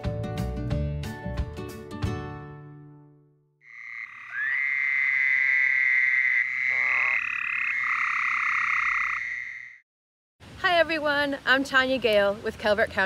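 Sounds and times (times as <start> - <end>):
frogs trilling: 3.6 - 9.8.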